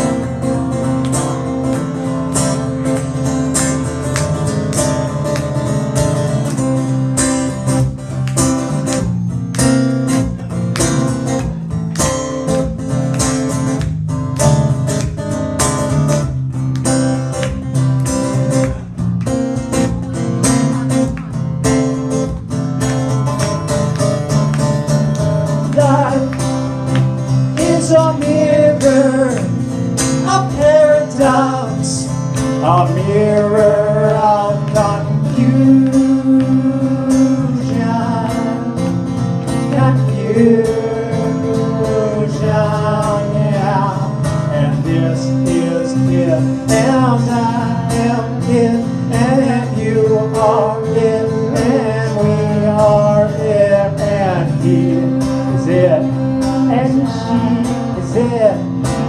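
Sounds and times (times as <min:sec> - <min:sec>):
guitars strumming and picking: 0:00.0 - 0:59.0
voices singing slow song: 0:25.7 - 0:39.0, 0:39.6 - 0:59.0.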